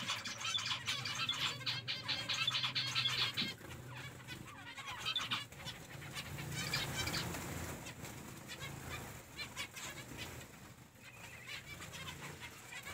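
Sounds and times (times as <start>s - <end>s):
finches calling: 0.0s - 7.5s
wing flutters: 0.0s - 12.9s.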